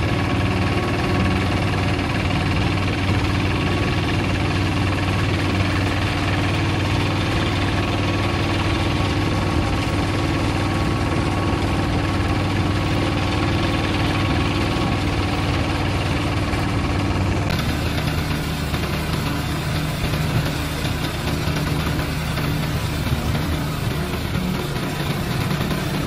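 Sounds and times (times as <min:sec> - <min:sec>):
tractor engine running: 0:00.0 - 0:26.0.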